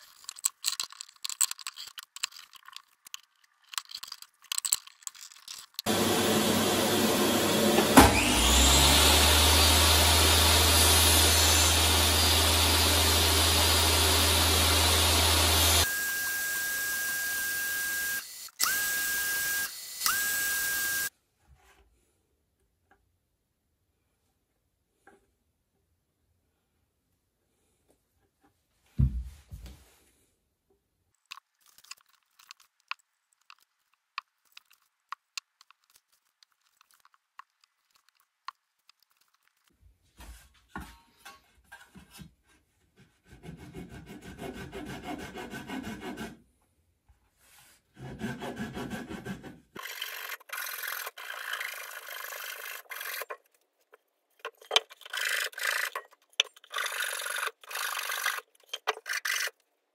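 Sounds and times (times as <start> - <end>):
pull saw rasping through wood: 5.8 - 21.1, 48.0 - 53.5, 54.4 - 59.6.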